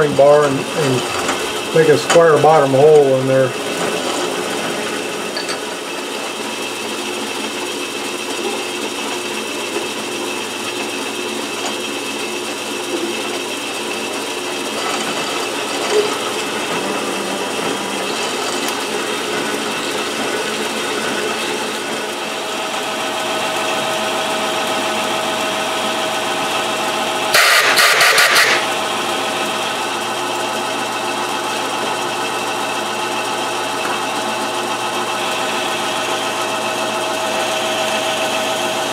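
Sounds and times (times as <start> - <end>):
metal lathe humming and whining: 0.0 - 38.9
loud noisy burst: 27.3 - 28.8.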